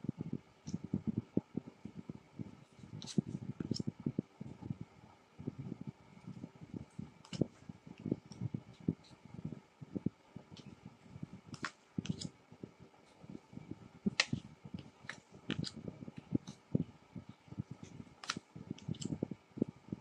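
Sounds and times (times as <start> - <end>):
cards rustling: 18.2 - 19.1.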